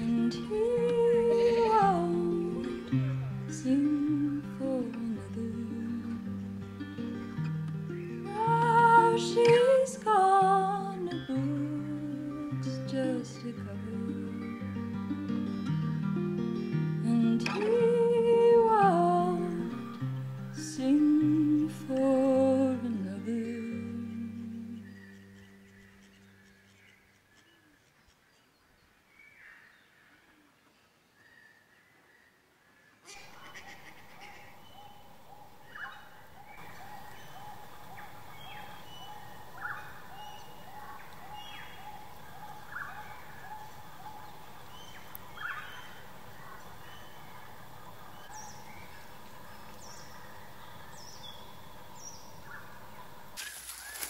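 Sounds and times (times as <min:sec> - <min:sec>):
gentle acoustic guitar song: 0:00.0 - 0:26.7
downward-sweeping bird calls: 0:33.1 - 0:52.8.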